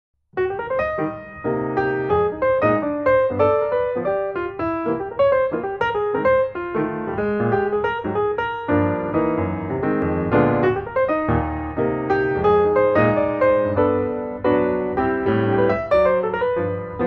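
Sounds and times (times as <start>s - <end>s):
piano music: 0.4s - 17.0s.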